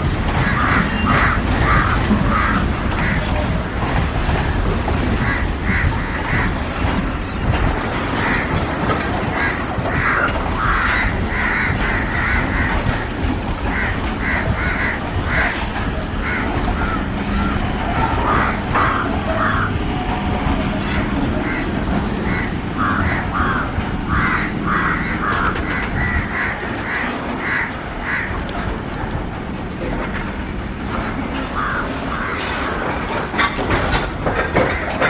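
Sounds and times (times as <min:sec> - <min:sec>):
freight train rumbling: 0:00.0 - 0:35.0
crows cawing: 0:00.4 - 0:03.2, 0:09.3 - 0:13.1, 0:13.7 - 0:15.6, 0:16.2 - 0:17.6, 0:18.2 - 0:19.8, 0:20.9 - 0:28.4, 0:31.6 - 0:32.8.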